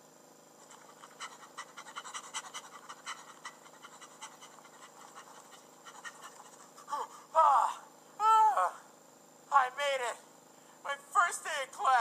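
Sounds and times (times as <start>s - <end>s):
quick panting: 0.6s - 7.3s.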